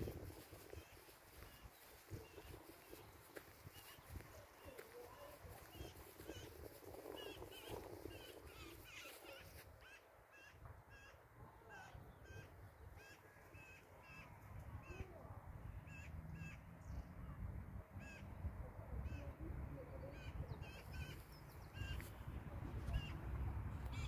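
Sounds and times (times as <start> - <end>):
wind on microphone: 0.0 - 9.6, 18.4 - 24.0.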